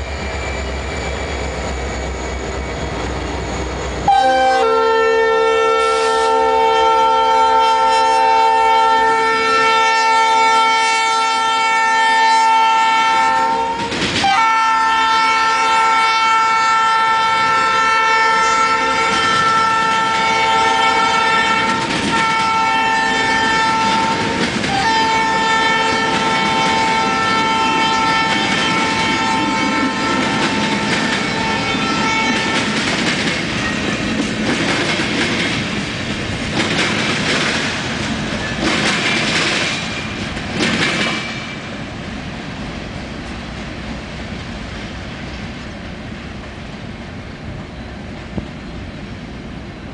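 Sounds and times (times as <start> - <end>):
locomotive horn: 4.0 - 32.8
train wheels clattering over rails: 13.6 - 14.5, 19.0 - 42.1.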